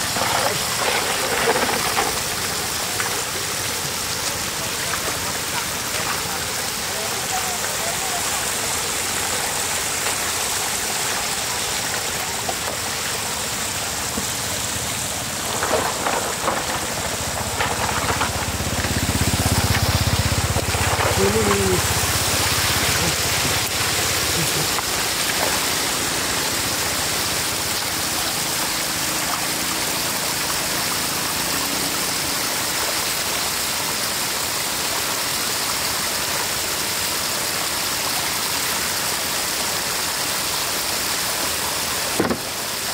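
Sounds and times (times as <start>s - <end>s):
water rushing and splashing: 0.0s - 42.9s
sharp splashes or knocks: 14.1s - 26.5s, 42.1s - 42.7s.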